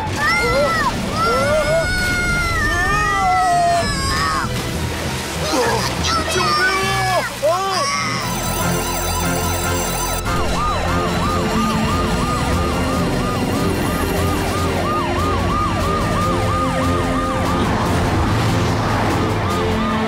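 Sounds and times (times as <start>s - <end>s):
background music: 0.0s - 20.0s
cartoon alarm siren wailing: 7.8s - 17.6s.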